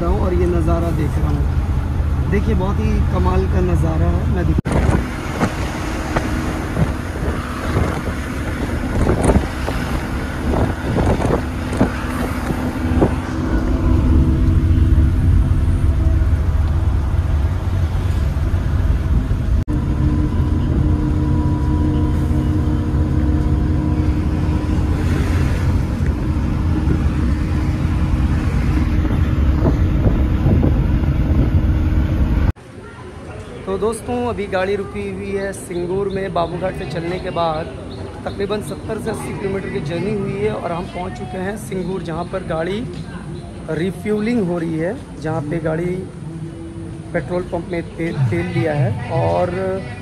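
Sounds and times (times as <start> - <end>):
bus engine drone: 0.0 - 50.0
road rumble: 0.0 - 50.0.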